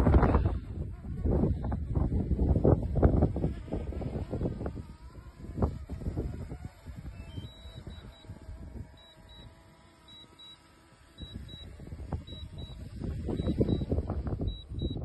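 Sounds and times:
wind buffeting microphone: 0.0 - 10.0, 10.8 - 15.0
short high electronic beeps: 9.0 - 11.7, 12.3 - 13.9.

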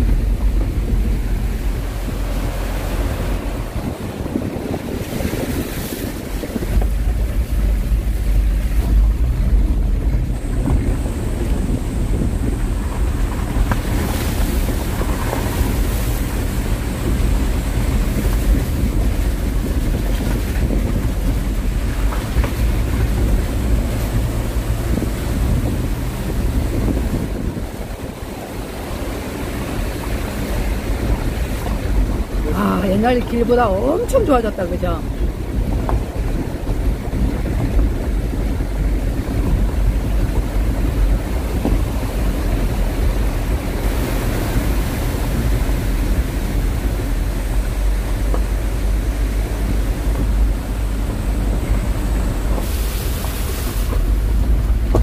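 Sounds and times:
car driving slowly: 0.0 - 55.0
rushing mountain stream: 0.0 - 55.0
wind buffeting microphone: 0.0 - 55.0.

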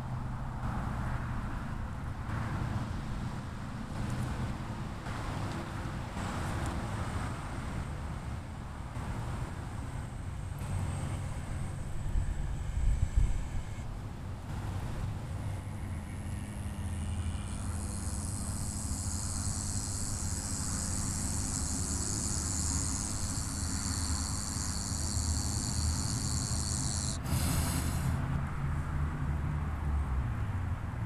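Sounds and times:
high hiss: 17.4 - 28.3.

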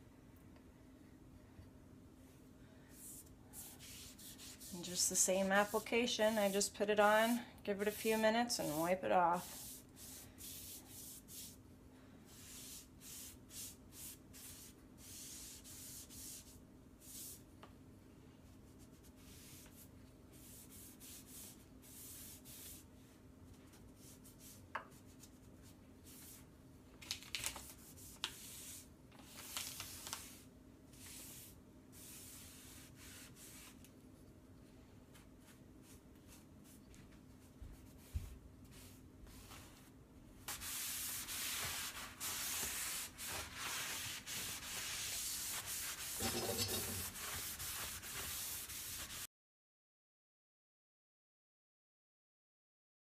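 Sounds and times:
faint steady hum: 0.0 - 45.6
foam brush swishing on wood: 2.9 - 6.7, 7.8 - 11.6, 30.2 - 33.8, 35.1 - 49.3.

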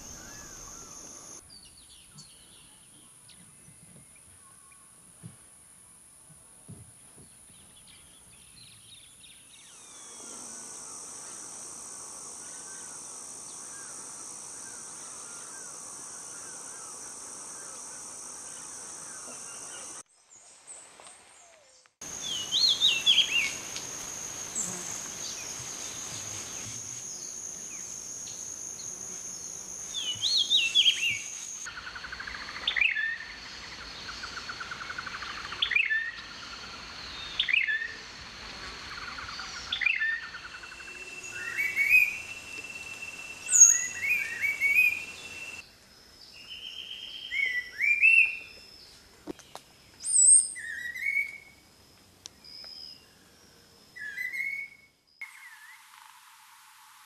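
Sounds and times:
high insect-like drone: 0.0 - 1.4, 9.7 - 20.0, 22.0 - 32.5, 38.2 - 45.6
birds chirping: 0.0 - 2.7, 12.4 - 20.0, 21.4 - 31.7
whistled bird song: 22.2 - 23.6, 32.6 - 33.4, 37.2 - 38.0, 39.4 - 45.6, 46.4 - 48.8, 50.0 - 51.6, 54.0 - 55.9.

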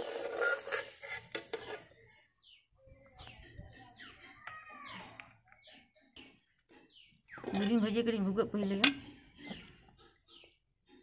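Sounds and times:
birds whistling: 2.4 - 7.8, 8.6 - 11.0.

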